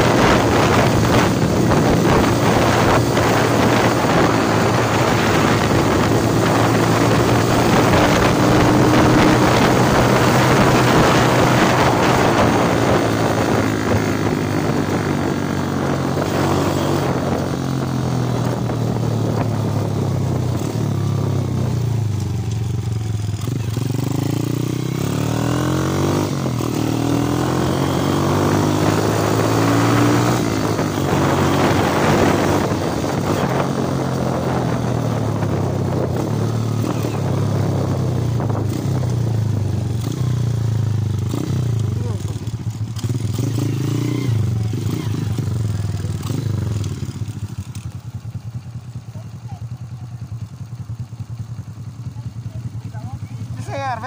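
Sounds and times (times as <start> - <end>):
wind on microphone: 0.0 - 22.3, 23.0 - 42.4
motorcycle engine running: 0.0 - 54.0.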